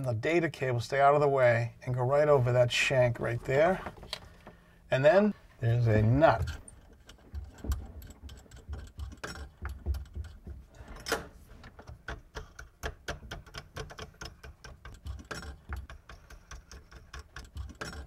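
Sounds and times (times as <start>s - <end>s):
metal nut clicking and rattling: 6.3s - 18.0s.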